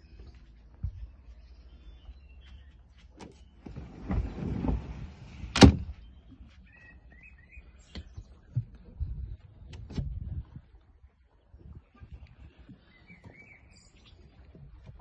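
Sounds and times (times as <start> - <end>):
sliding door scraping shut: 3.7 - 5.8.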